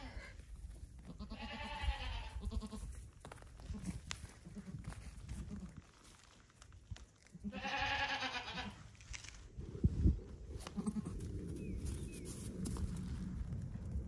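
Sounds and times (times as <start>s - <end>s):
goat kid bleating: 1.0s - 3.0s, 3.7s - 5.8s, 7.4s - 8.8s, 10.6s - 11.2s.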